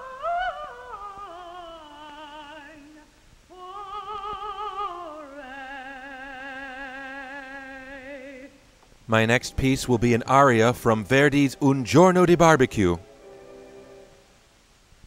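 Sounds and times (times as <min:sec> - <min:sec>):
woman singing opera with vibrato: 0:00.0 - 0:08.7.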